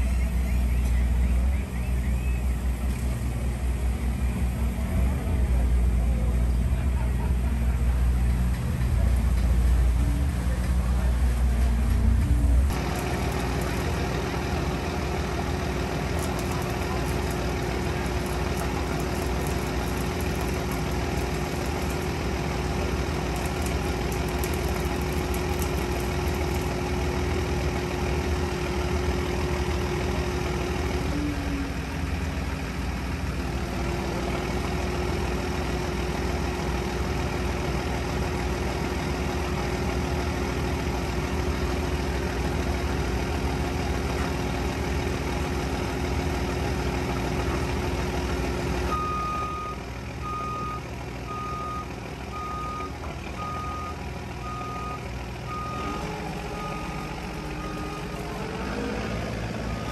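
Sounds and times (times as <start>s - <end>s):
forklift engine running: 0.0s - 59.9s
reversing alarm beeping: 48.9s - 58.9s.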